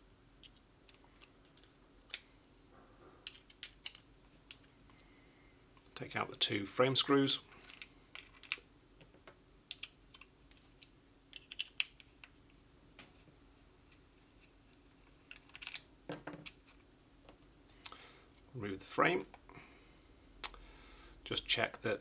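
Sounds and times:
parts being handled: 0.4 - 6.0, 7.4 - 18.5.

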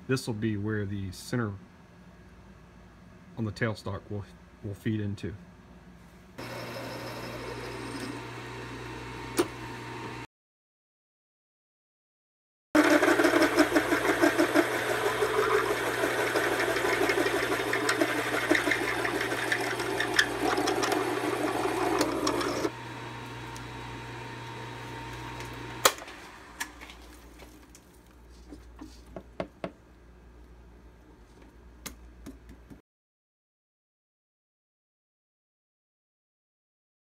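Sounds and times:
drill chatter cutting metal: 6.4 - 8.7, 12.8 - 22.8
lathe motor hum: 6.4 - 10.2, 12.8 - 26.6.

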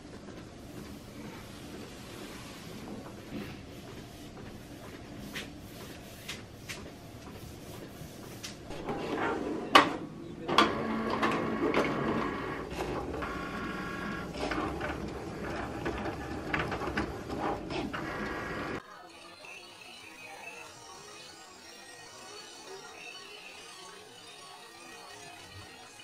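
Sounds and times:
printer motor whirring: 5.8 - 26.0
printer clicks and clunks: 9.7 - 18.8.

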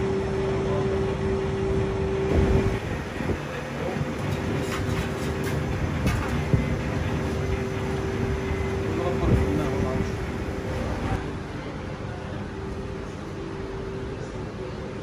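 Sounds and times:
kitchen equipment humming: 0.0 - 11.8
steady hum tone: 0.0 - 15.0.

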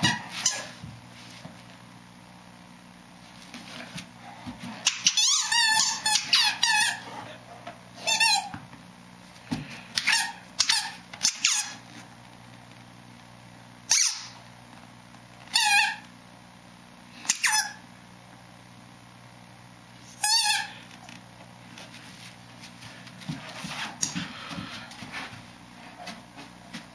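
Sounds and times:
squeaky dog toy squeaking: 4.8 - 7.0, 8.0 - 8.5, 10.0 - 11.8, 13.9 - 14.4, 15.5 - 16.0, 17.3 - 17.8, 20.1 - 20.8.

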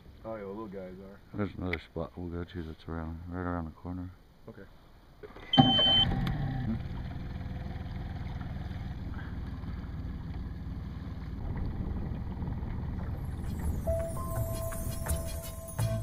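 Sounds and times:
boat motor running: 5.6 - 15.0.

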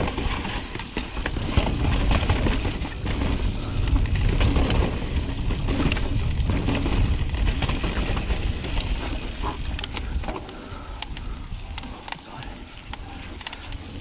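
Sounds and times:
bike clicks and rattles: 0.0 - 14.0
wind and tyre rumble: 0.0 - 14.0.

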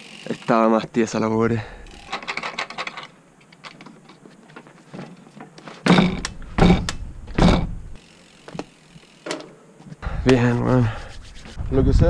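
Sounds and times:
bike knocking on wooden deck: 5.0 - 9.5.

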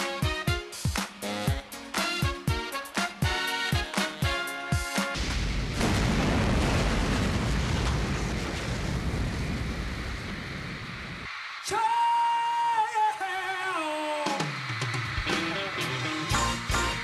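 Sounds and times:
fireworks rumbling roar: 5.1 - 11.8
music with long held note: 15.3 - 17.0.

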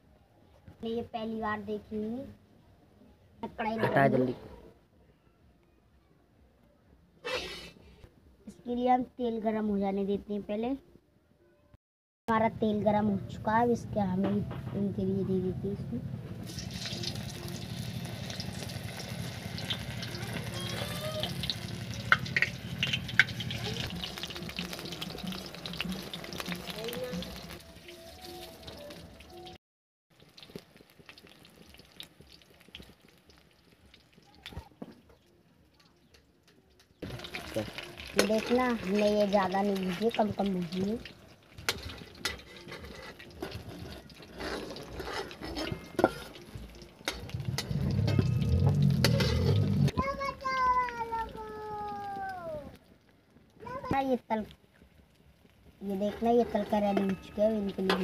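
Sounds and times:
food sizzling in hot oil: 16.4 - 34.8, 37.0 - 58.0
steel plate and spatula clinking: 41.6 - 49.6, 56.1 - 58.0
metal ladle clinking on pan: 56.7 - 58.0.

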